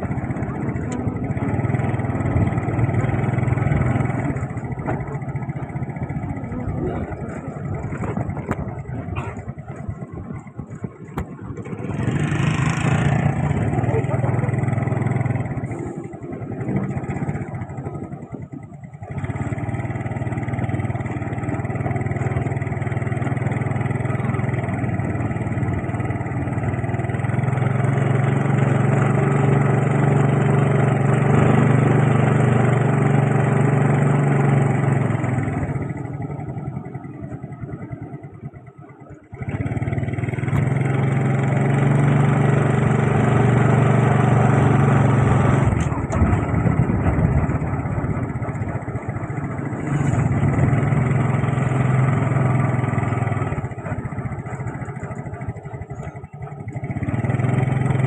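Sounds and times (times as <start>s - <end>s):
small motorcycle engine running: 0.0s - 58.0s.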